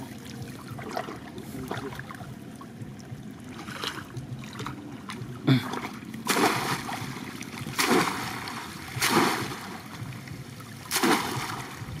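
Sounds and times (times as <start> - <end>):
water running and sloshing: 0.0 - 12.0
fish trap splashing in water: 5.7 - 10.0, 10.8 - 12.0.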